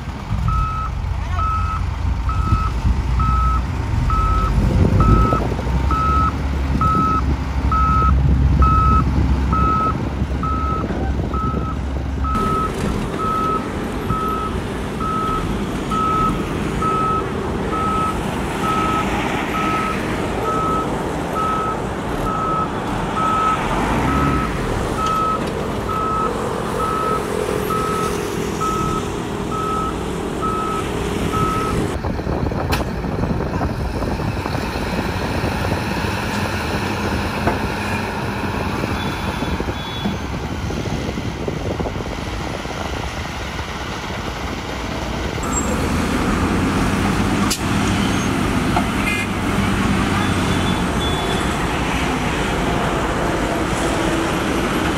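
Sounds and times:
diesel engines running: 0.0s - 54.9s
reversing alarm beeping: 0.5s - 32.4s, 50.1s - 51.6s.

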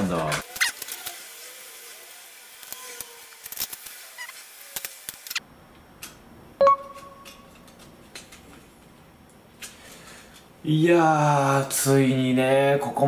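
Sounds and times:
brief ringing tone: 6.6s - 7.3s.

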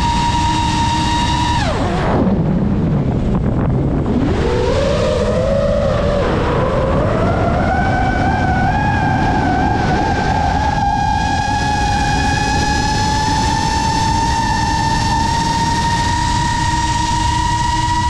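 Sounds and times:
drone motors whining: 0.0s - 18.0s
rush of wind: 0.0s - 18.0s.

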